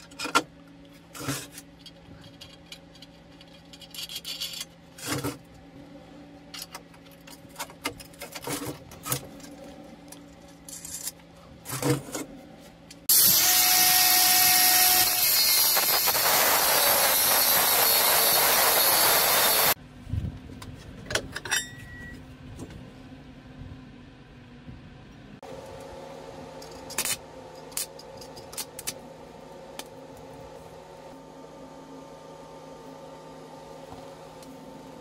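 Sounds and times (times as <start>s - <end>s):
power tool grinding steel: 13.1s - 19.8s.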